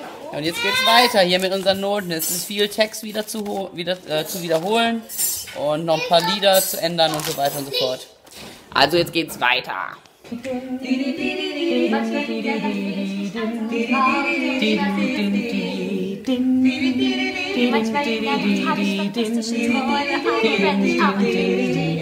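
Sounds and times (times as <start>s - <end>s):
voices singing in harmony: 10.3s - 22.0s.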